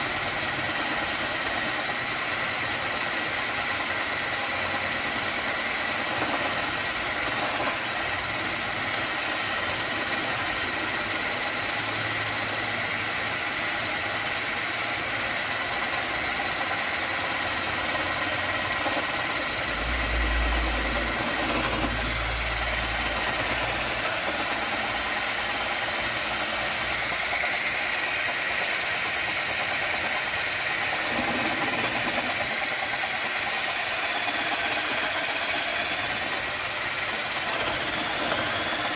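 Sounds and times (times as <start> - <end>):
cordless drill motor whine: 0.0 - 38.9
drill bit scraping wood: 0.0 - 38.9.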